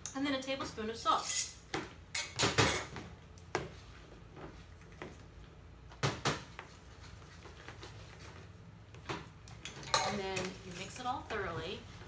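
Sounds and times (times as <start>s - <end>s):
utensils clinking on ceramic bowl: 9.6s - 10.5s.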